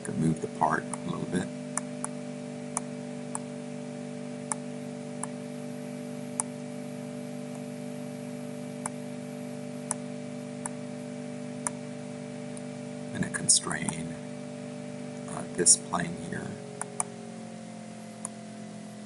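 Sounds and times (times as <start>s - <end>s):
low electrical hum: 0.0s - 19.0s
computer mouse clicking: 13.8s - 14.0s.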